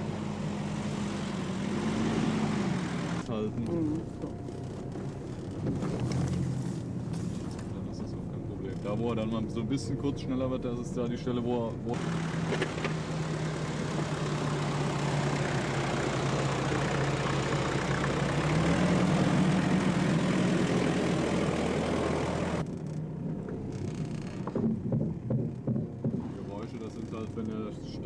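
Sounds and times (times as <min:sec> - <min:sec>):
car engine running under load: 0:00.0 - 0:28.0
knocks: 0:24.4 - 0:26.3.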